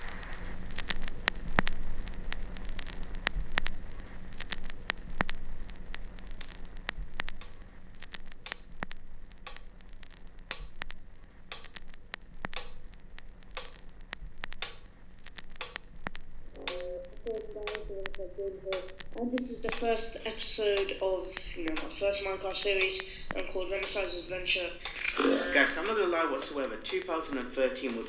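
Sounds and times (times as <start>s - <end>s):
low hum: 0.0s - 28.0s
steady hiss: 0.0s - 28.0s
scattered clicks: 0.3s - 28.0s
metronome ticking: 9.4s - 9.7s, 10.5s - 10.9s, 11.5s - 11.8s, 12.5s - 12.9s, 13.5s - 13.8s, 14.6s - 14.9s, 15.6s - 15.9s, 16.6s - 28.0s.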